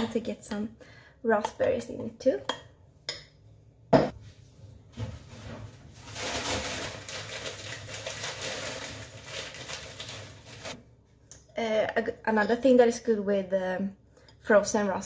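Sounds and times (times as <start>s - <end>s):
plastic bag rustling: 5.2s - 10.8s.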